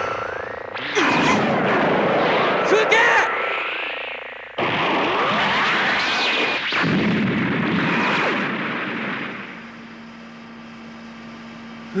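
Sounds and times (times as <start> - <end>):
faint steady hum: 0.0 - 12.0
explosion: 1.0 - 3.9, 4.6 - 9.6.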